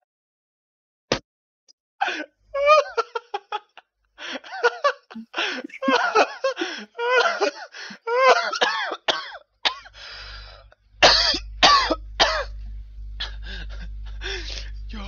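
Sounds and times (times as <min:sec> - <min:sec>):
man laughing hard: 0:02.0 - 0:09.0, 0:13.2 - 0:14.6
wheezing breath: 0:05.2 - 0:05.8, 0:06.5 - 0:07.0, 0:07.6 - 0:08.1, 0:09.9 - 0:10.8, 0:13.2 - 0:14.8
man coughing: 0:05.4 - 0:09.9, 0:11.0 - 0:12.6.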